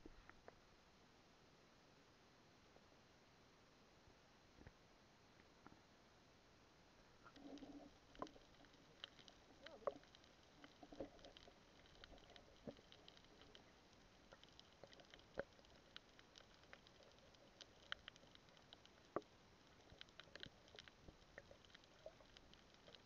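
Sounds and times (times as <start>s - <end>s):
underwater clicks and crackles: 7.2s - 23.0s.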